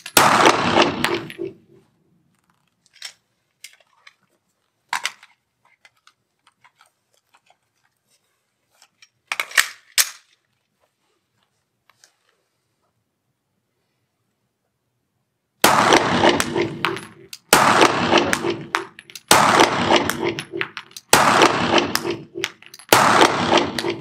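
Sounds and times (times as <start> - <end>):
pistol metallic clicks and clacks: 9.3 - 10.4, 15.9 - 24.0.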